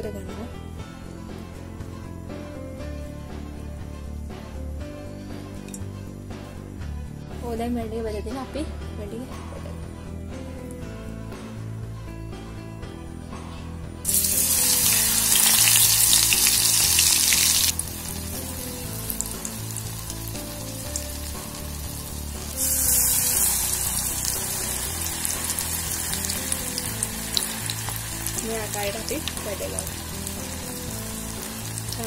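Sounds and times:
soft background music: 0.0 - 32.0
deep-frying sizzle and bubbling: 14.0 - 32.0.

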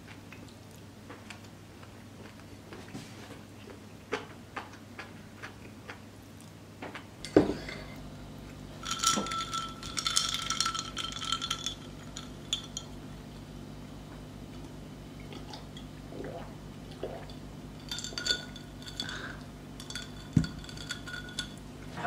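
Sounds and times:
glass clinking: 7.2 - 8.0, 8.8 - 13.0, 17.8 - 21.6.

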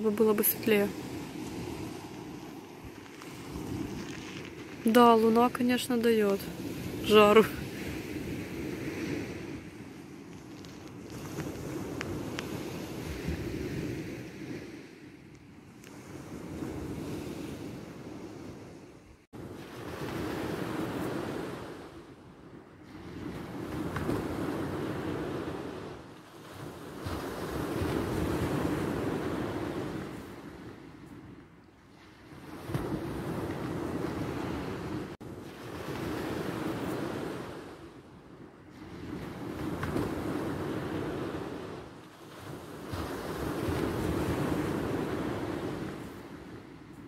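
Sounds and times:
sea waves breaking on beach: 0.0 - 47.0
wind rumbling on microphone: 0.0 - 47.0
surf washing onto shore: 38.7 - 46.7.

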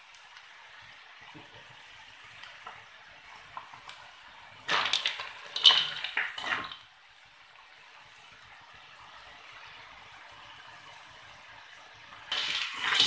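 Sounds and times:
faint sizzling hiss: 0.0 - 13.0
snail shells clattering in a wok: 4.7 - 6.8, 12.3 - 13.0.

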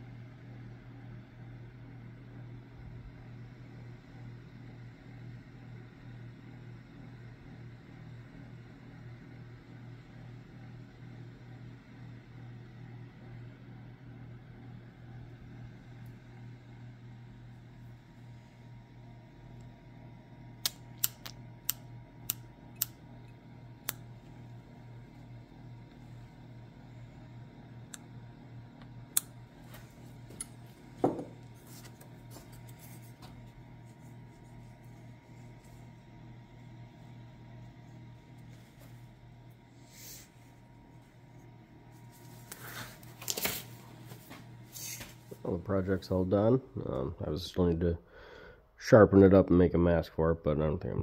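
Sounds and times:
low mechanical hum: 0.0 - 51.0
sharp clicks: 20.6 - 23.0
dull knock on wooden workbench: 31.0 - 31.4.

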